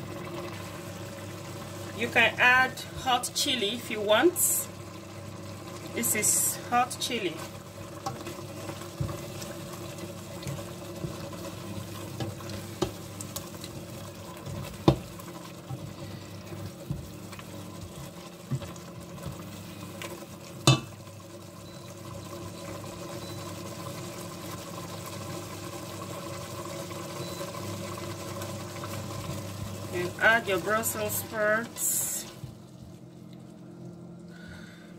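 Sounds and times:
low steady hum: 0.0 - 34.9
spoon knocking against pot: 20.6 - 20.9.

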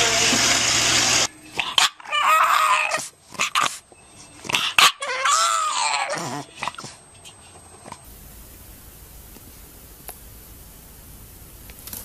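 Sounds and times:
dog whining: 1.6 - 7.0.

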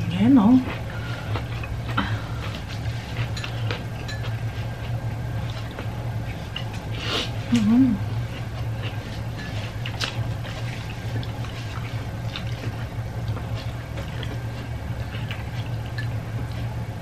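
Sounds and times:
steady low hum: 0.0 - 17.0
wet mouth sounds: 7.0 - 8.2.

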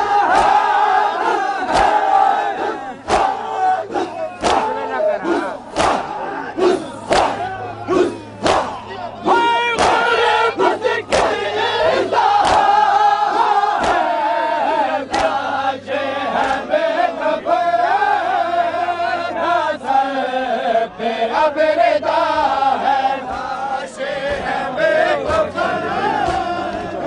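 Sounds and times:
men chanting in unison: 0.0 - 27.0
hands slapping bare chests: 1.7 - 2.0, 3.0 - 3.4, 4.0 - 4.7, 5.7 - 6.1, 7.1 - 7.4, 8.4 - 8.8, 9.8 - 10.0, 11.1 - 11.4, 12.4 - 12.7, 13.8 - 14.0, 15.1 - 15.4.

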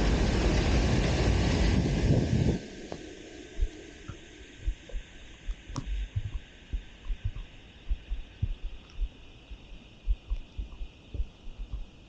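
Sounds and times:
steady rain hiss: 0.0 - 12.0
raindrops thudding on camera: 4.7 - 11.9.

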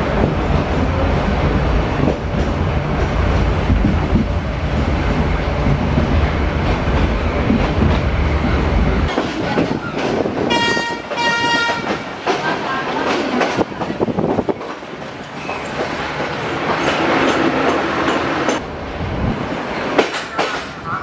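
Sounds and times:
train wheels rumbling and rattling: 0.0 - 21.0
train horn: 10.5 - 12.1.

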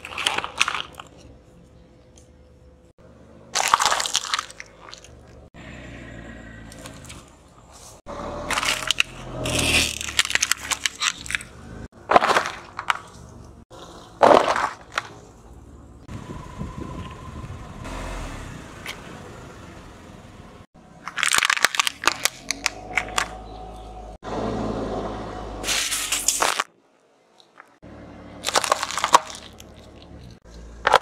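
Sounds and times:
tyre crushing small objects: 0.0 - 1.4, 3.5 - 5.5, 6.7 - 15.4, 21.0 - 23.5, 25.6 - 26.7, 28.4 - 31.0.

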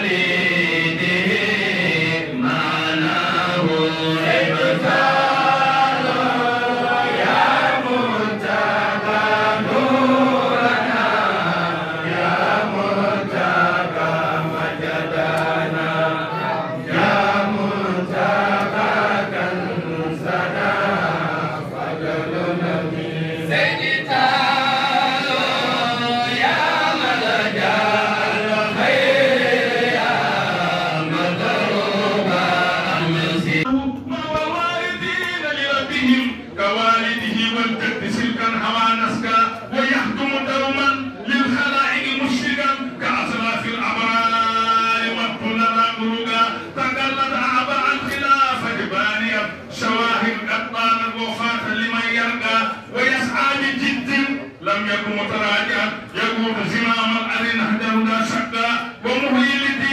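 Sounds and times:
men chanting together: 0.0 - 33.7.

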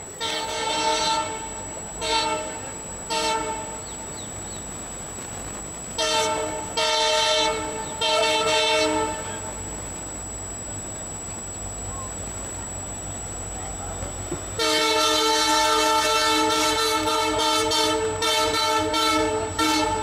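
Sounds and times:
locomotive air horn blasts: 0.0 - 4.4, 5.9 - 10.0, 14.4 - 20.0.

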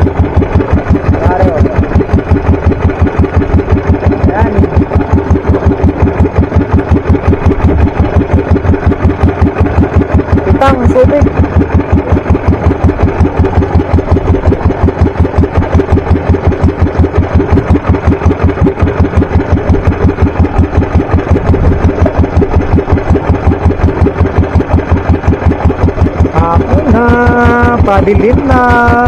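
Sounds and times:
boat engine chugging: 0.0 - 29.0.

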